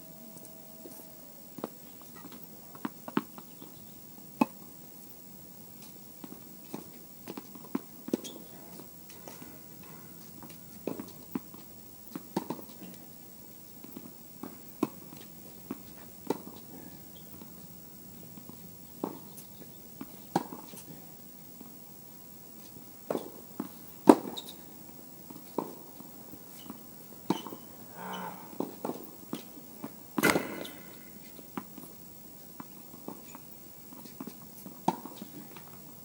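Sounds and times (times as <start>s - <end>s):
tennis balls bouncing on court: 25.3s - 27.7s, 28.6s - 31.9s, 32.6s - 35.9s
rackets striking tennis balls: 28.6s - 31.9s.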